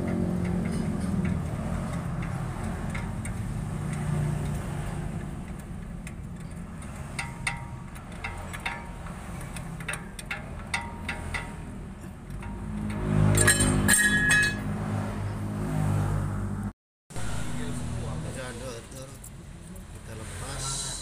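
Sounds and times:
wrench metallic clicks: 0.0 - 14.4.

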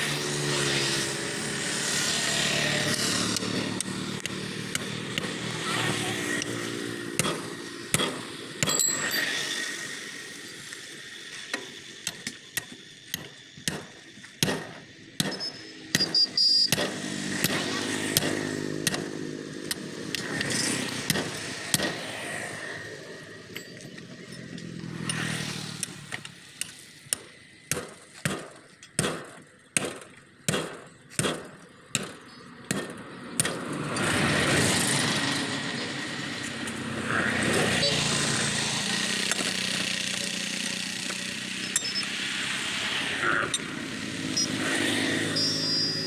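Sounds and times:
hammer striking tyre rim: 7.2 - 9.0, 12.0 - 19.8
vehicle engine passing: 33.1 - 46.0.

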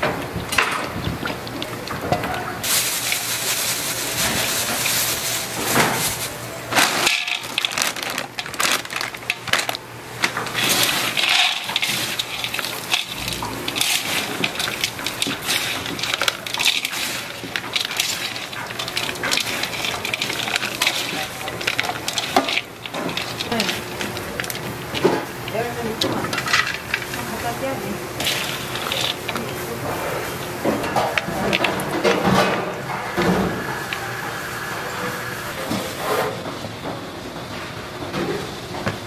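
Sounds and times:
dried fish rustling in steel bowl: 2.6 - 32.4.

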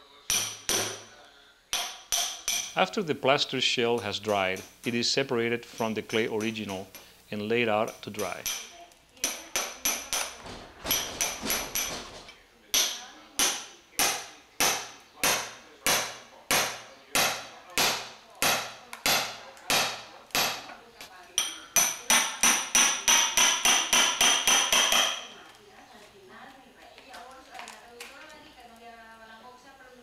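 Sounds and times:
hammer striking steel chisel: 0.3 - 1.1, 1.7 - 2.8, 8.4 - 12.0, 12.7 - 20.7, 21.4 - 25.3.

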